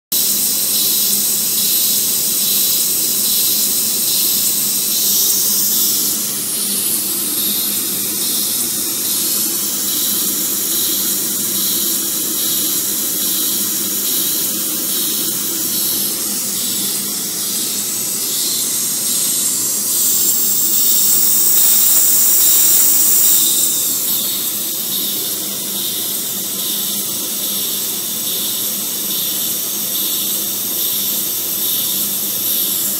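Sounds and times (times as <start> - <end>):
steam engine hissing: 1.7 - 26.3.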